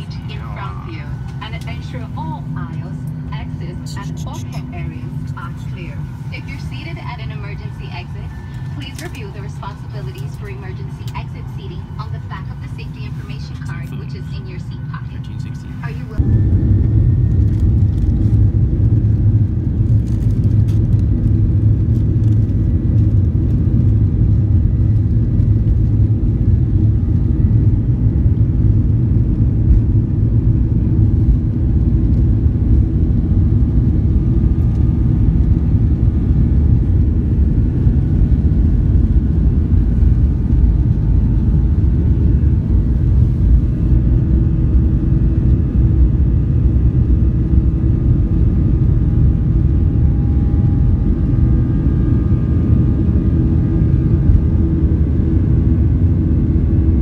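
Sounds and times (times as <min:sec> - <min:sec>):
faint engine whine: 0:00.0 - 0:57.0
jet engines and wheels rumbling: 0:00.0 - 0:57.0.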